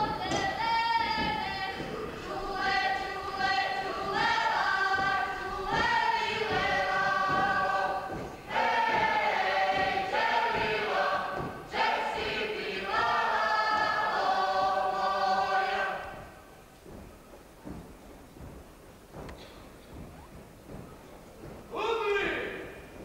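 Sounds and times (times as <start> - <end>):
group singing in chorus: 0.0 - 16.4.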